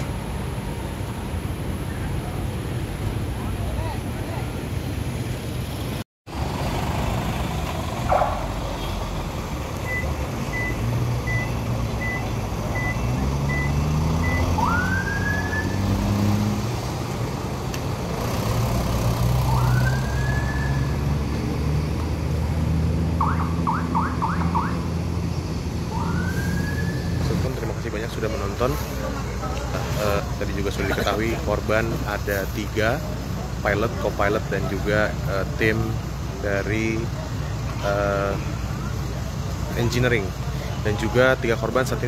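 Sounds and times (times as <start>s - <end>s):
heavy truck engines running: 0.0s - 42.0s
short siren chirps: 9.9s - 15.9s, 19.4s - 21.0s, 25.9s - 27.2s
police siren whooping: 14.4s - 15.8s, 19.4s - 21.0s, 23.2s - 24.9s, 25.9s - 27.4s.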